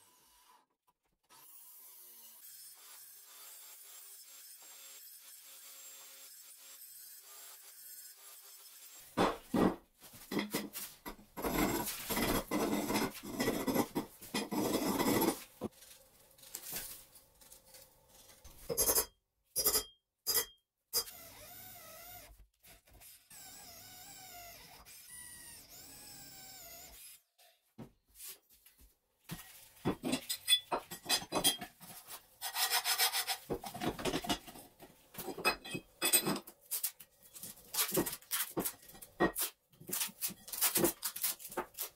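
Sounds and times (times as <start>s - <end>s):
drill motor boring steel: 23.3s - 27.3s
rough rasping strokes on steel: 32.0s - 33.5s.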